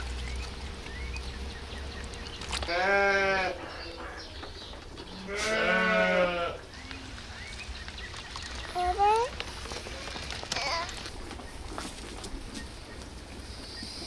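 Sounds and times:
lambs bleating: 2.7s - 4.0s, 5.2s - 6.6s.

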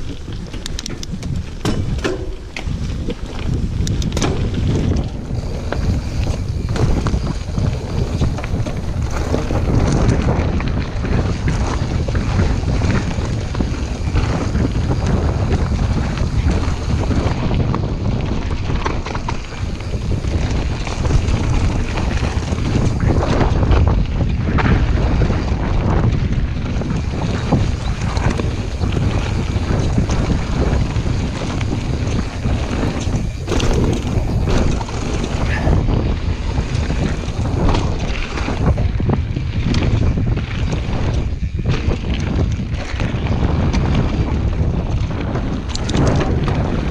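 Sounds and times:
tyres rumbling on dirt and gravel: 0.0s - 46.9s
wind buffeting microphone: 0.0s - 46.9s
bike clattering knocks: 0.4s - 10.2s, 27.7s - 38.9s.

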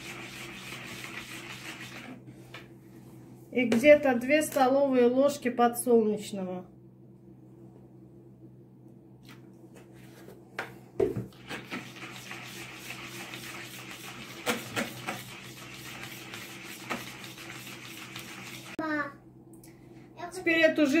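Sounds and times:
whisk knocking bowl: 0.0s - 2.2s, 11.0s - 18.8s
whisk swishing batter: 0.0s - 2.2s, 11.3s - 18.8s.

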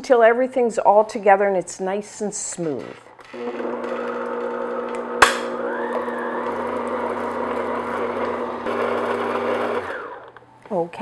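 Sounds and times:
electric stand mixer running: 3.2s - 10.4s.

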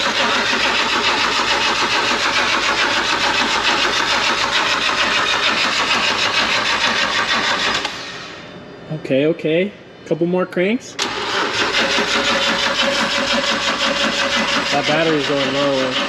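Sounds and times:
starter motor cranking engine: 0.0s - 8.1s, 11.0s - 16.0s.

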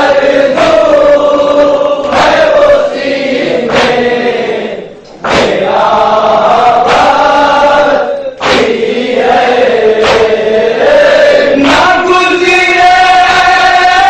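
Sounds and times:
men chanting in unison: 0.0s - 14.0s
chest-beating slaps: 1.5s - 4.4s, 5.0s - 7.6s, 8.4s - 10.6s, 11.6s - 12.0s.

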